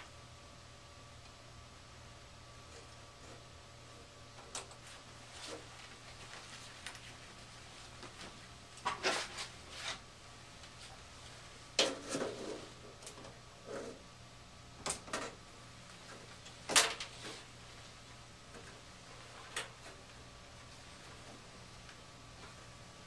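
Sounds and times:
knocks and rattles of parts: 0:16.7 - 0:17.1.

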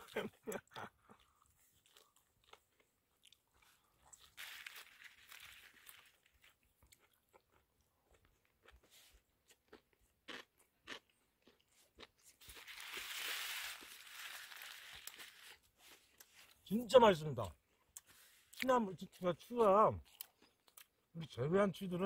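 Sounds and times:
person chewing: 0:00.0 - 0:16.6, 0:17.6 - 0:18.7, 0:20.0 - 0:21.1
faint crunches: 0:03.7 - 0:07.5, 0:11.8 - 0:16.6.

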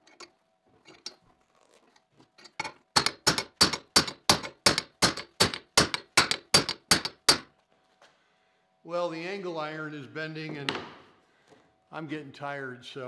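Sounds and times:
hammer striking metal: 0:03.0 - 0:07.5.

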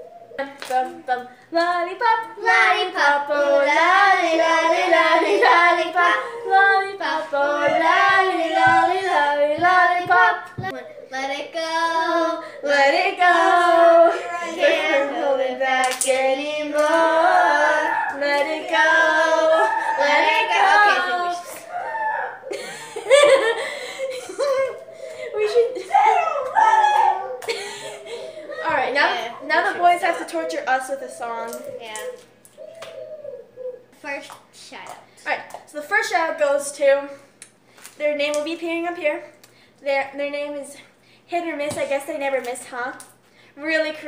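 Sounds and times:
girl singing unaccompanied: 0:00.3 - 0:21.8
soft low thumps: 0:07.2 - 0:10.9.

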